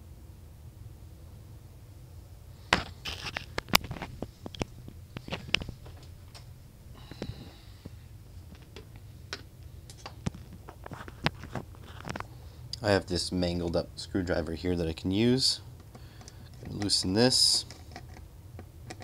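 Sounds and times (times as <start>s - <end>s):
soft rustle: 10.0s - 12.6s.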